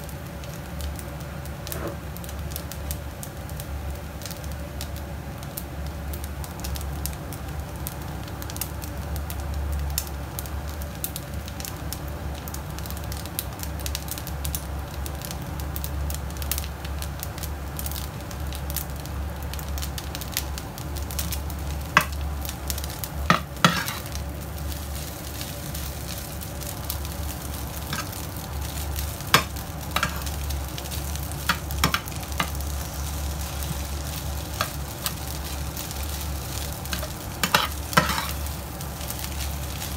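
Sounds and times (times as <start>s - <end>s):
rice sizzling in a pan: 0.0s - 39.9s
steady low hum: 20.5s - 39.9s
metal spatula scraping a pan: 23.3s - 24.1s, 29.3s - 30.4s, 31.5s - 32.6s, 36.9s - 38.5s.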